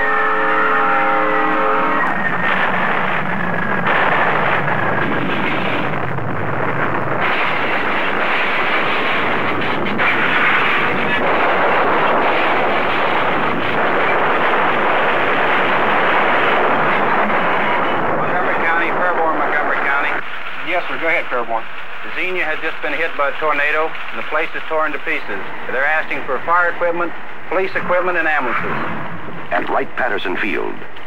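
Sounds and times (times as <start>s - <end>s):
locomotive air horn chord: 0.0s - 2.1s
roar of tornado wind: 0.0s - 23.1s, 23.9s - 29.6s.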